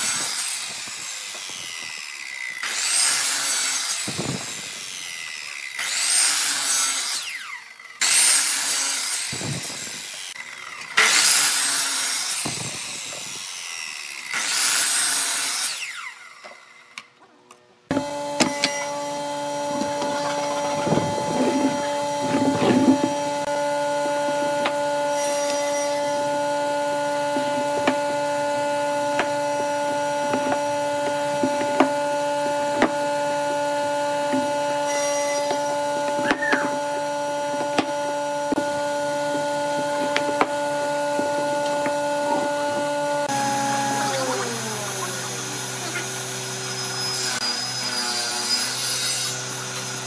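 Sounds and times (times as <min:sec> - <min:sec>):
electric motor humming: 0:17.9 - 0:48.5.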